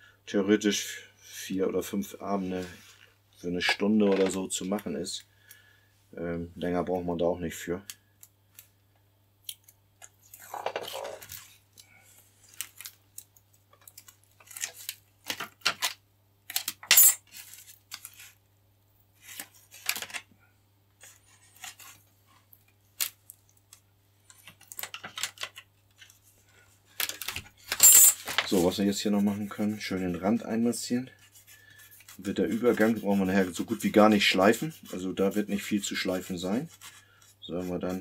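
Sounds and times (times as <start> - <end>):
small materials clicking and rustling: 9.5 - 18.2, 19.4 - 20.3, 22.6 - 26.2, 26.9 - 28.6.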